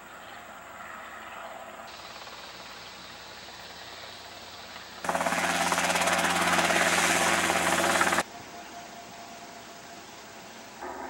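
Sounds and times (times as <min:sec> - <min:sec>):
helicopter hovering: 0:05.0 - 0:08.2.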